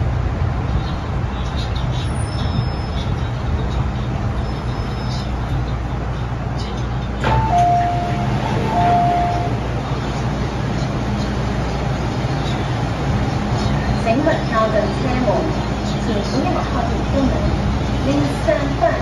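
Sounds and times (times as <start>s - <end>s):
train running rumble: 0.0s - 19.0s
train doors clunk: 7.2s - 10.4s.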